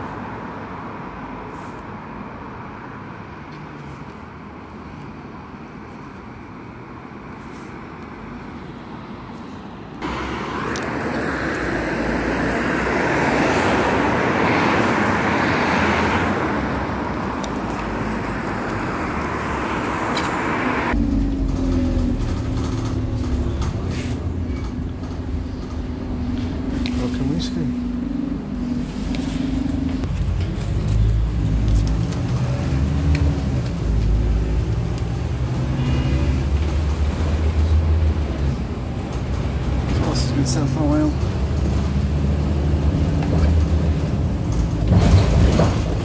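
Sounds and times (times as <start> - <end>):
bus engine rumble with held note: 0.0 - 46.0
traffic on wet road: 0.0 - 46.0
bus approaching loudly: 10.0 - 46.0.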